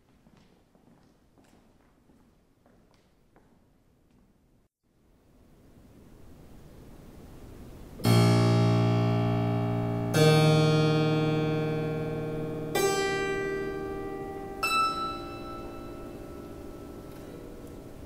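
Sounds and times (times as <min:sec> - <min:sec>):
harpsichord strings plucked: 0:08.0 - 0:18.0.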